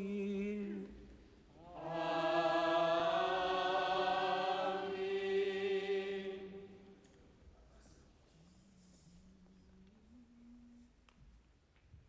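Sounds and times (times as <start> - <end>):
choir chanting long notes: 1.6 - 6.9.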